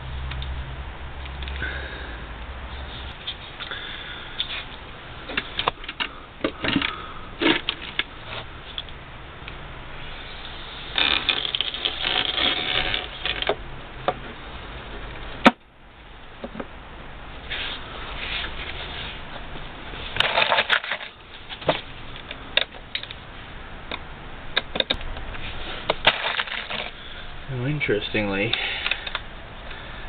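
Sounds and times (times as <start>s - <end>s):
plastic scraping and rustling: 10.9s - 13.6s, 17.5s - 22.8s, 24.8s - 27.1s.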